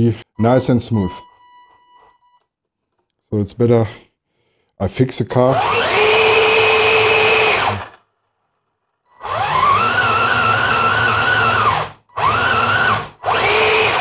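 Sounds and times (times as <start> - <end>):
electric motors whining: 5.5 - 14.0.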